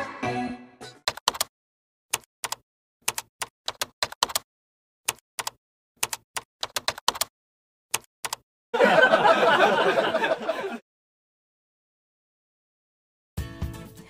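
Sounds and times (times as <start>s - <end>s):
keyboard keystroke clicks: 1.1s - 1.5s, 2.1s - 4.4s, 5.1s - 7.3s, 7.9s - 8.4s.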